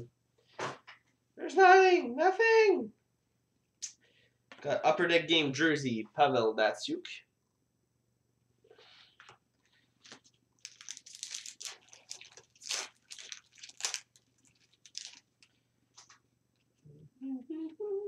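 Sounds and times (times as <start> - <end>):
foil wrapper tearing and crinkling: 10.0 - 15.5.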